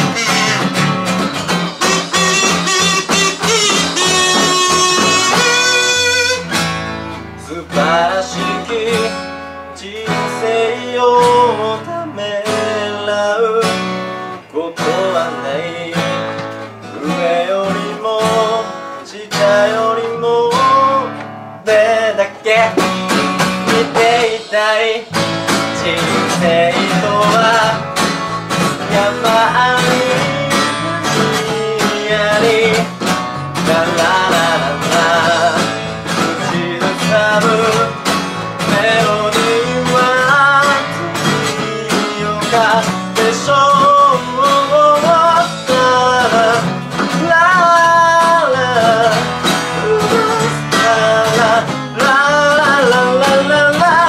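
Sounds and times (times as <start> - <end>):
drum kit: 0.0 - 7.1, 22.6 - 54.0
electric bass: 0.0 - 8.0
strummed acoustic guitar: 0.0 - 54.0
wavering melody line: 1.5 - 6.6.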